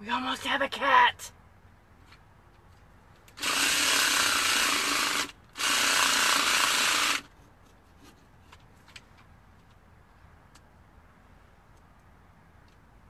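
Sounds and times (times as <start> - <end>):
saw cutting pumpkin: 3.4 - 7.3.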